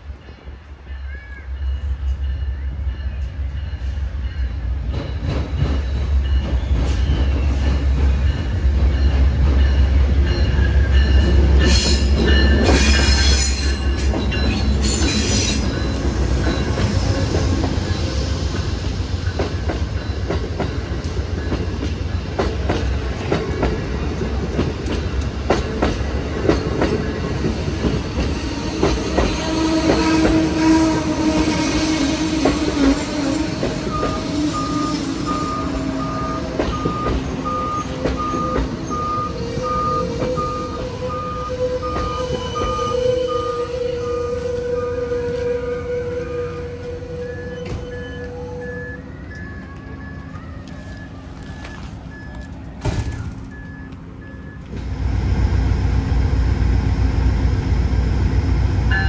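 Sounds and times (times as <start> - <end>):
diesel locomotive engine rumbling: 0.0 - 59.0
train wheels squealing: 0.9 - 22.5, 25.8 - 54.8.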